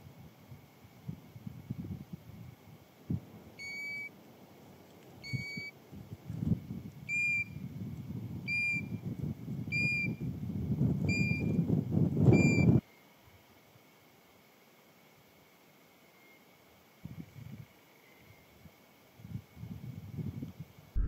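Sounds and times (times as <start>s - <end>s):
bird whistled call: 3.6s - 4.1s, 7.1s - 7.6s.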